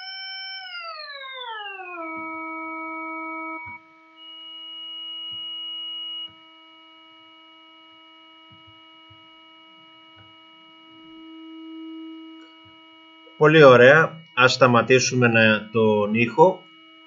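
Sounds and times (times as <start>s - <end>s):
synthesized tone: 0.0s - 6.4s, 9.7s - 17.0s
high overtone: 10.9s - 17.0s.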